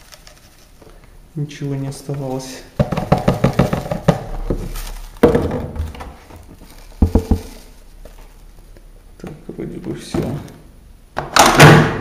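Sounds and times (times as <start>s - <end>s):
powder pouring rustle: 0.0s - 8.8s.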